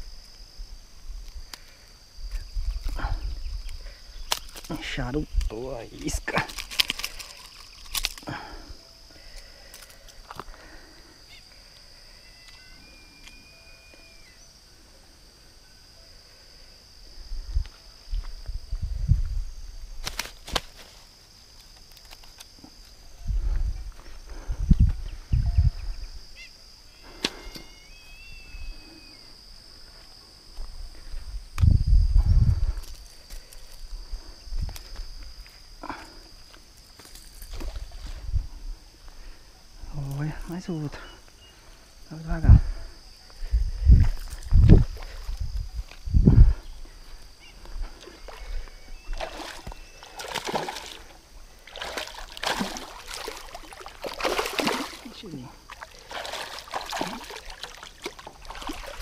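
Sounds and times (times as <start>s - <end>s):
water splashing: 49.1s - 59.0s.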